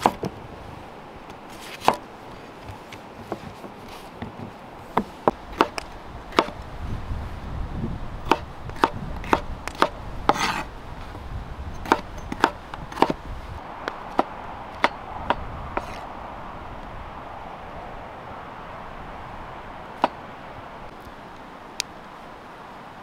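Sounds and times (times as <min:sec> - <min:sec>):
knife chopping on wooden board: 0:04.3 - 0:06.6, 0:08.3 - 0:10.7, 0:11.8 - 0:13.2.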